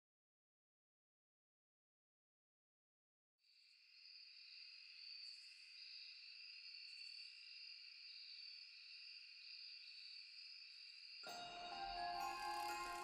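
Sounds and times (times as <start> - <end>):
crickets trilling: 3.8 - 13.0.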